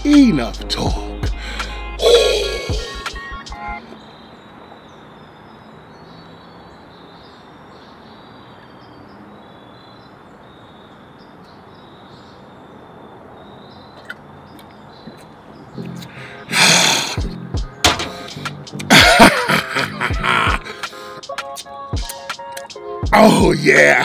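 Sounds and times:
outdoor background hiss: 0:00.0 - 0:24.0
faint bird chirps: 0:02.0 - 0:03.0, 0:03.8 - 0:17.1.

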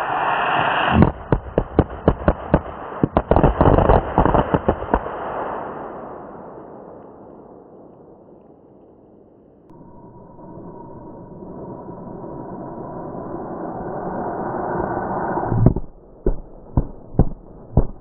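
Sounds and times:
firecracker bangs: 0:00.9 - 0:06.0.

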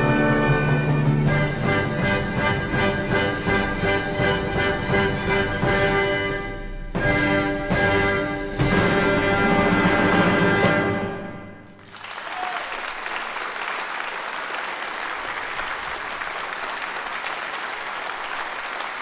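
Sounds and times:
audience applause: 0:11.7 - 0:19.0.

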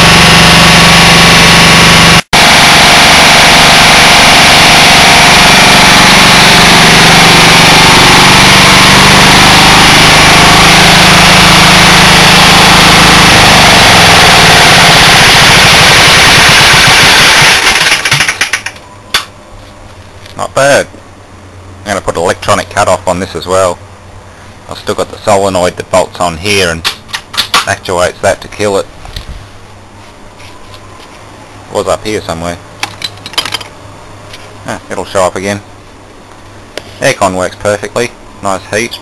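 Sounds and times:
diesel generator engine running: 0:00.0 - 0:17.6.

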